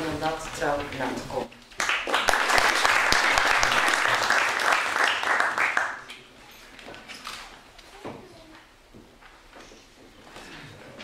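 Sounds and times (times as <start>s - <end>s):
people applauding: 1.8s - 6.3s.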